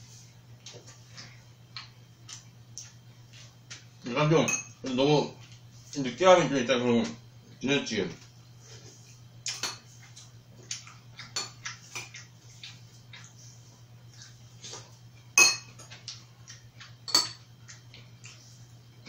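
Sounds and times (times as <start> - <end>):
faint low hum: 0.0 - 19.0
utensils clinking on ceramic: 15.4 - 16.0, 17.1 - 17.4.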